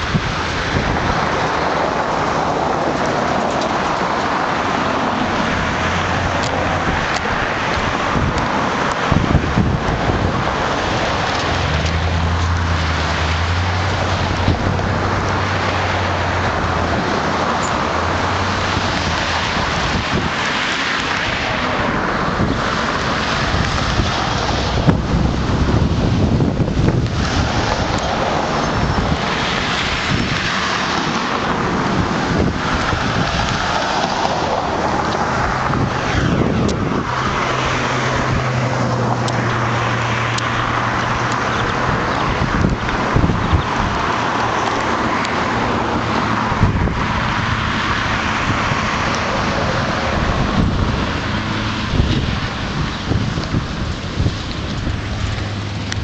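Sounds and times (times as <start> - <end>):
low engine hum: 0.0 - 56.0
passing traffic: 0.0 - 56.0
wind on microphone: 0.0 - 56.0.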